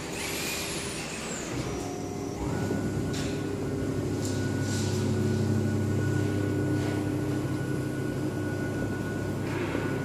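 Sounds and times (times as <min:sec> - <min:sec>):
router spindle whining: 0:00.0 - 0:10.0
low machine hum: 0:01.4 - 0:10.0.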